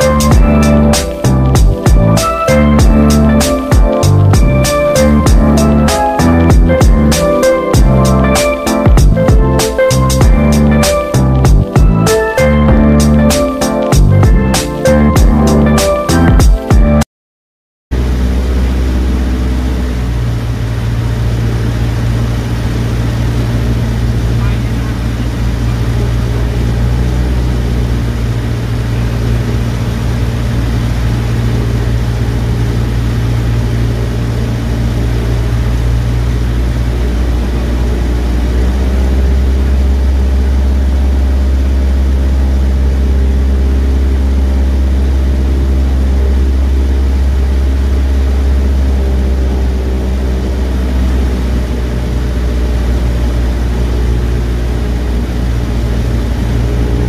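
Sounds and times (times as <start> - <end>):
propeller plane engine droning: 0.0 - 15.8, 17.9 - 57.0.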